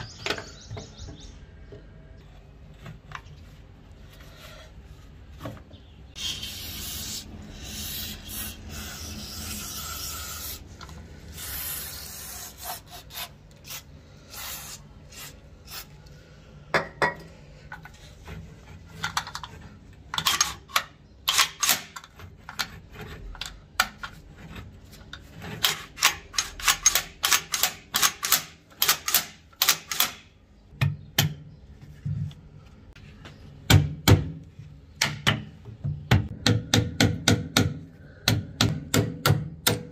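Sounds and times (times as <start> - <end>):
metal rubbing and scraping: 6.1 - 16.0, 17.7 - 20.7, 22.0 - 27.0
sharp metal clicks: 25.6 - 30.3.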